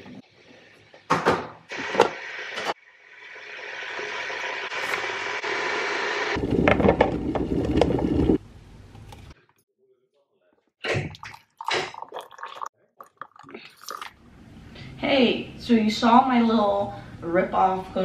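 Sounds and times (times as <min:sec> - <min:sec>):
electric kettle heating: 0:01.7 - 0:08.4.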